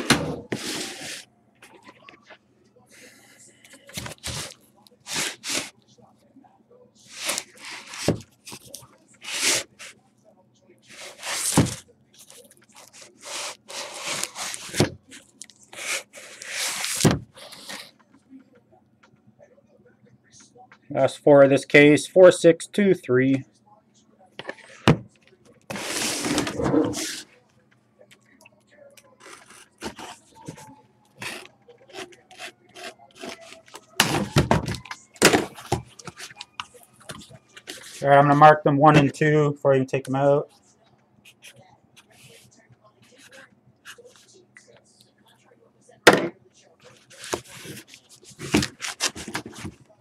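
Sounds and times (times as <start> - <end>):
cardboard rubbing and scraping: 12.9 - 14.9, 25.7 - 27.3, 47.1 - 49.8.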